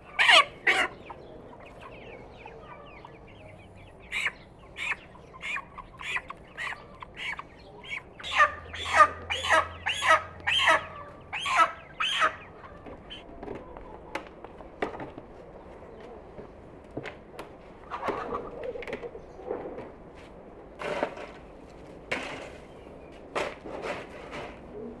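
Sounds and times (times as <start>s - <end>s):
shovel scraping on concrete: 20.8s - 21.4s, 22.1s - 22.7s, 23.4s - 24.8s.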